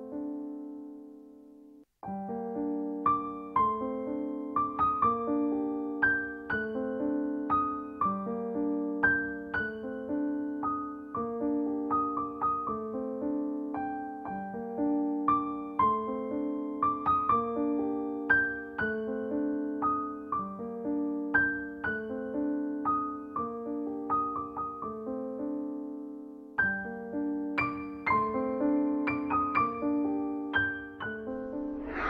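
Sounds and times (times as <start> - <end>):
gentle piano music: 0.0 - 31.8.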